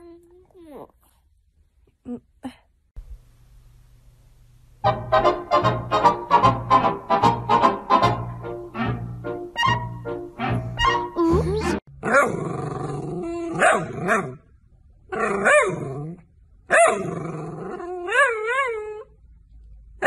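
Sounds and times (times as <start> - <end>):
background music: 4.8 - 11.8
dog howling and growling: 15.1 - 19.1.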